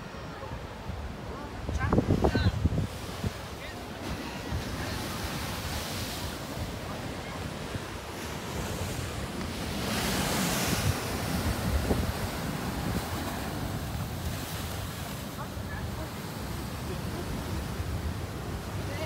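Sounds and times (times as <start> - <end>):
surf breaking on a beach: 0.0 - 19.0
wind buffeting microphone: 4.4 - 18.8.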